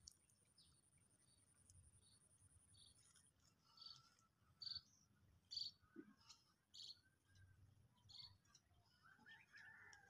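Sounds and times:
small bird chirping: 0.5s - 6.0s, 6.7s - 8.6s.

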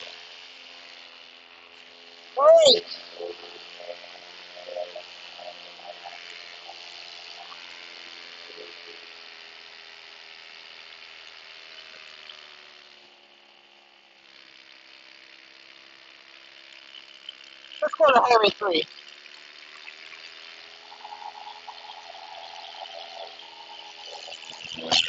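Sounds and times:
paramotor engine drone: 0.0s - 25.0s.

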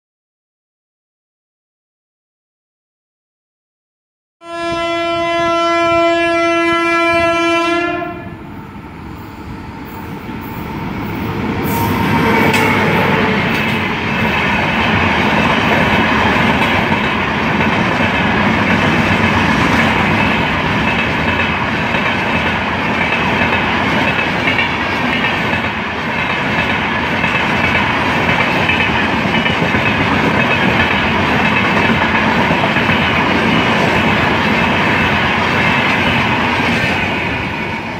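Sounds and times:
train horn blast: 4.4s - 8.5s, 11.7s - 13.6s
passenger train rumbling past: 4.5s - 37.9s.

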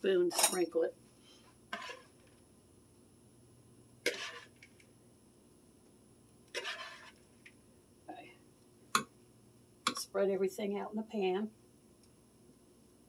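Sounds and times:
hand scooping breadcrumbs from bowl: 4.1s - 4.6s, 6.5s - 7.2s.

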